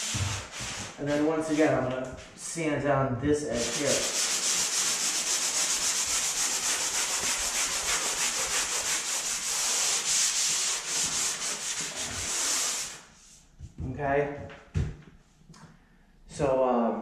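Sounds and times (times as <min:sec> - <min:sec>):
sanding sponge rasping on drywall: 0:00.0 - 0:01.4, 0:03.5 - 0:13.4.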